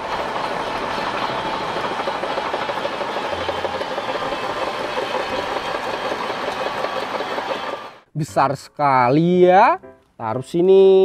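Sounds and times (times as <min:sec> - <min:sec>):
bulldozer diesel engine running: 0:00.0 - 0:08.0
steel tracks clattering: 0:00.0 - 0:08.0.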